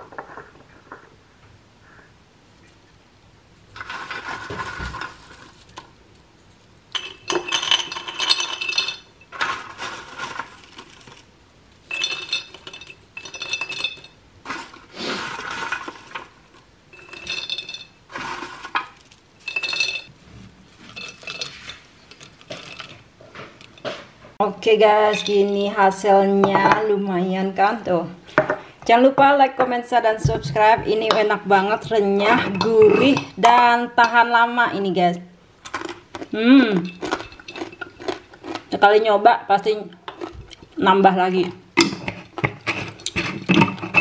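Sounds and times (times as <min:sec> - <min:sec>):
crackers rattling into glass jar: 0:03.8 - 0:05.9, 0:06.9 - 0:23.8, 0:35.6 - 0:38.8, 0:40.1 - 0:40.8.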